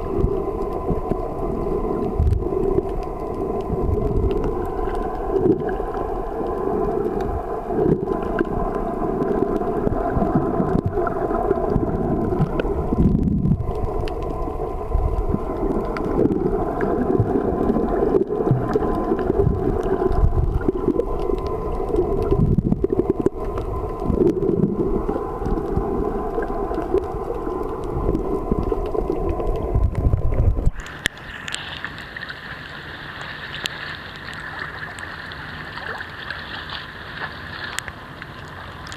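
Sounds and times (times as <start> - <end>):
muffled underwater rushing: 0.0 - 38.9
water lapping: 30.7 - 38.9.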